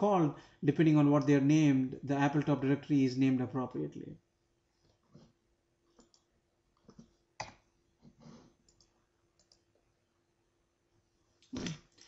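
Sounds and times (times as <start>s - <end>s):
computer mouse clicks: 6.0s - 7.6s, 8.2s - 9.7s.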